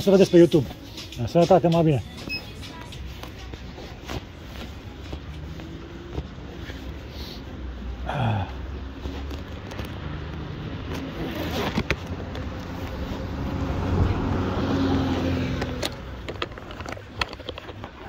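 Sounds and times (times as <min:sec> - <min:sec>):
street traffic: 0:00.0 - 0:18.0
bus engine: 0:02.1 - 0:18.0.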